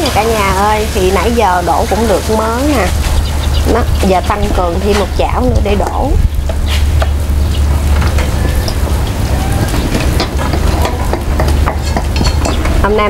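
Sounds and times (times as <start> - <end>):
batter sizzling in hot oil: 0.0 - 13.0
steady low rumble: 0.0 - 13.0.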